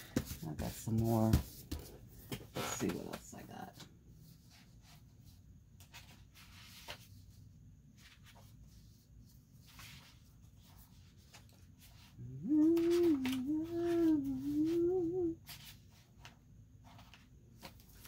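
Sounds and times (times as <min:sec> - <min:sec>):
woman humming a tune: 0:12.2 - 0:15.4.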